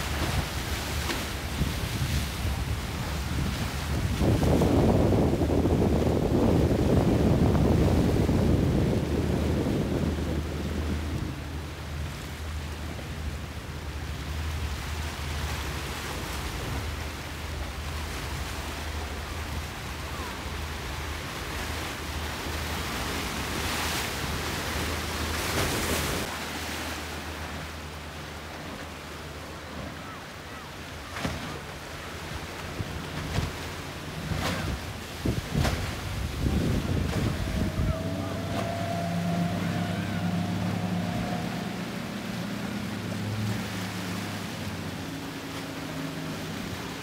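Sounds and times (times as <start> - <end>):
boat engine drone: 0.0 - 47.0
choppy sea and breaking waves: 0.0 - 47.0
wind buffeting microphone: 1.3 - 12.1, 32.7 - 44.4.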